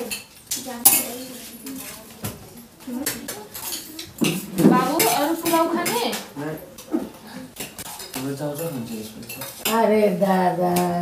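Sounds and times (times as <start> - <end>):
spoons clinking on metal plates: 0.0 - 2.1, 3.0 - 6.9, 7.5 - 10.0.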